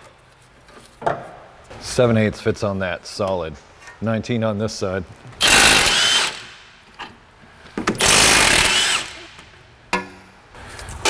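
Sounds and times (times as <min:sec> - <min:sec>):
impact wrench hammering: 0:07.8 - 0:10.2.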